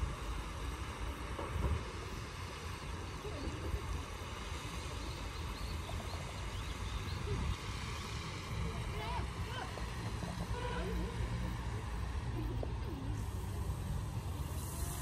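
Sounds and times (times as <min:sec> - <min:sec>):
steady outdoor hiss: 0:00.0 - 0:15.0
wind buffeting microphone: 0:01.4 - 0:15.0.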